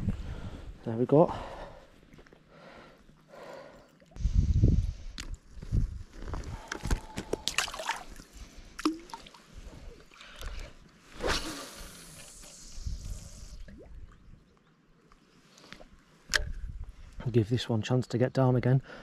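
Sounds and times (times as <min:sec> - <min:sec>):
wind rumble on microphone: 0:00.0 - 0:00.8, 0:04.2 - 0:07.4
water sloshing and dripping: 0:02.0 - 0:04.2, 0:06.7 - 0:11.0.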